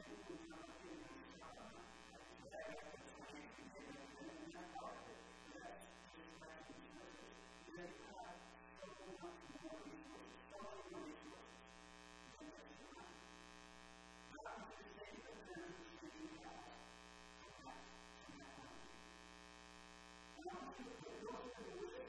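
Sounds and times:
faint man's voice: 0.0 - 11.7, 12.3 - 13.2, 14.3 - 19.0, 20.4 - 22.0
electrical buzz: 13.1 - 14.4.

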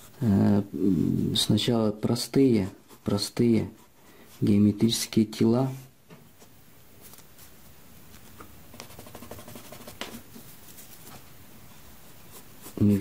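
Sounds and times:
pencil and paper clicks and scratches: 8.7 - 10.4.

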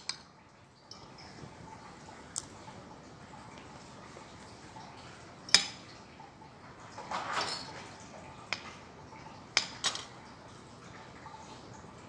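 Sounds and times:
utensils clinking on a plate: 0.0 - 1.5, 5.4 - 6.0, 6.9 - 8.9, 9.5 - 10.2.

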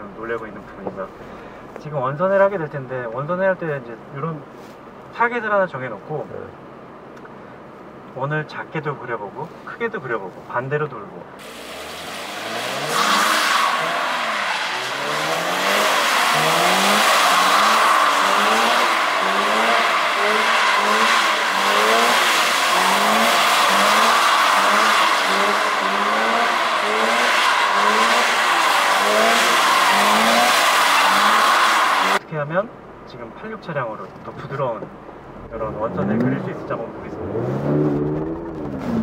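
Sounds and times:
car engine revving hard: 11.4 - 32.2, 35.4 - 39.0
tyres squealing on wet asphalt: 11.4 - 32.2.

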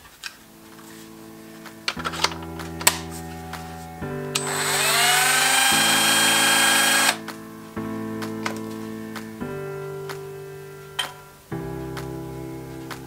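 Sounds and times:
rotary tool whining: 4.4 - 7.2.

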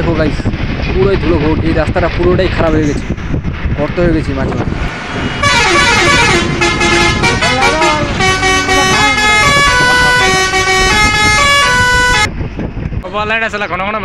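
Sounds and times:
engine and road rumble: 0.0 - 14.0
musical vehicle horn: 5.4 - 12.3.

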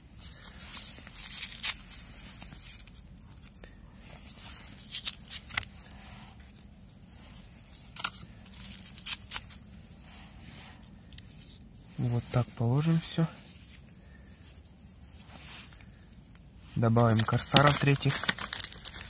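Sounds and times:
firecrackers and wrapping handled: 0.1 - 19.0
paper tearing: 0.4 - 2.9, 17.0 - 19.0.

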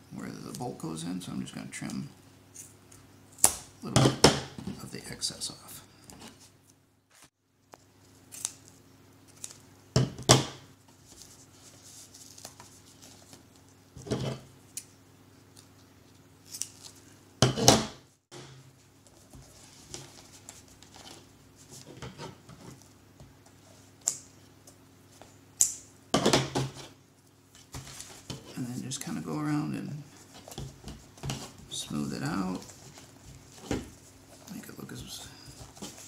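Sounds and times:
rustling and scraping of material: 6.0 - 9.7, 10.8 - 14.8, 15.4 - 25.4, 26.6 - 36.0.

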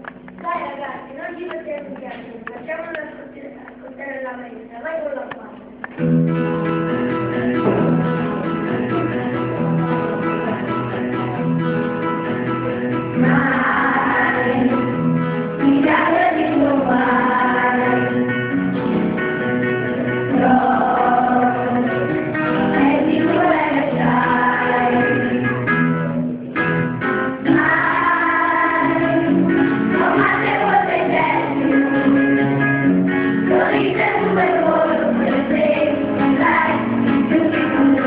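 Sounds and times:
guitar accompaniment: 0.0 - 38.0
children's choir singing: 13.1 - 19.2, 19.8 - 25.7, 27.4 - 38.0.

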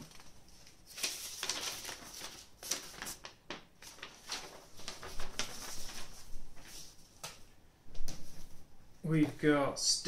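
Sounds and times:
paper rustling and crinkling: 0.0 - 7.4.

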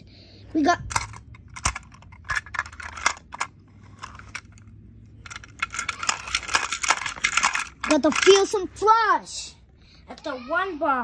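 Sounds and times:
plastic toys clattering: 0.6 - 8.9.

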